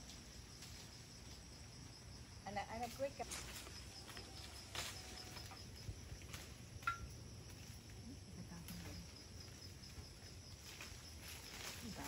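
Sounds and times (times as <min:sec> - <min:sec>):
insects droning: 0:00.0 - 0:12.0
leaves and branches rustling: 0:00.0 - 0:12.0.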